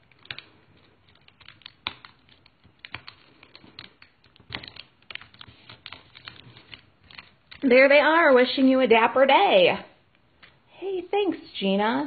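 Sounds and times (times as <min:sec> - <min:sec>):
fingers tapping paper: 0:00.0 - 0:07.7.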